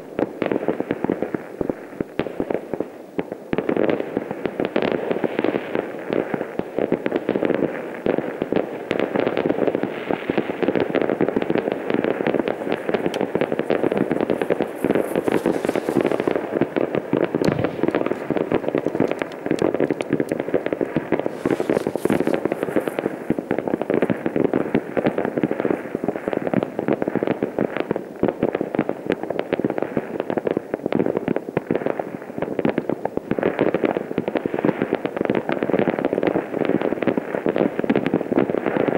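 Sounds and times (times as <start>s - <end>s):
fireworks crackling and banging: 0.0s - 38.9s
high firework hisses: 12.9s - 16.6s, 21.2s - 23.3s.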